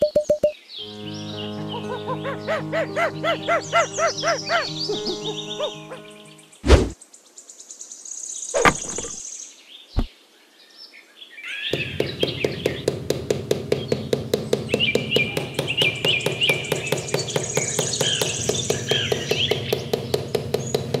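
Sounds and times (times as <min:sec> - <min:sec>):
birds chirping: 0:00.2 - 0:07.0, 0:08.4 - 0:10.1, 0:13.8 - 0:21.0
short knocks: 0:08.6 - 0:09.2.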